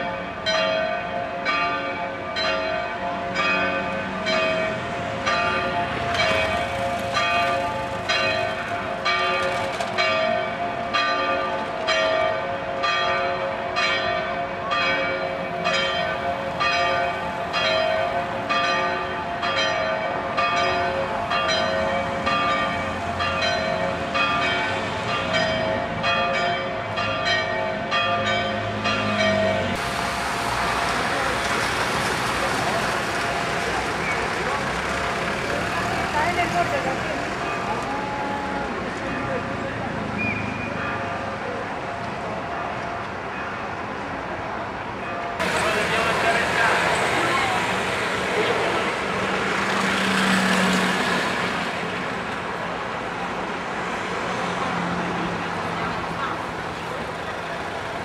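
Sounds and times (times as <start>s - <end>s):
church bells ringing: 0.0s - 31.3s, 37.4s - 39.9s, 40.6s - 43.9s, 45.0s - 49.6s.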